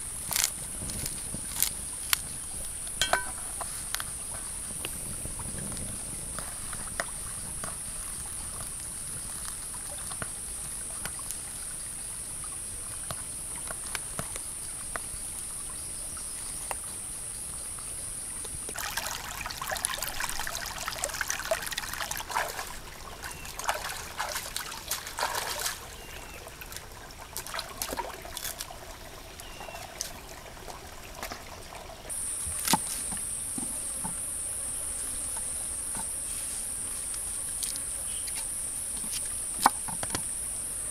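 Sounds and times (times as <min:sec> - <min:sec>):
stream trickling over rocks: 0:00.0 - 0:40.9
high insect trill: 0:32.1 - 0:40.9.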